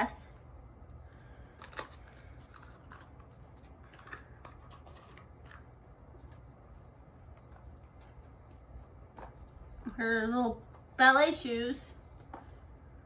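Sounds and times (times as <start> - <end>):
packaging rustling: 1.6 - 6.5.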